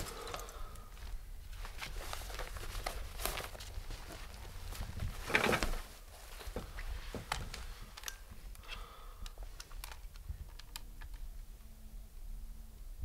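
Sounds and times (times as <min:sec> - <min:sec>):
camcorder handling rustle and clicks: 0:07.2 - 0:11.3.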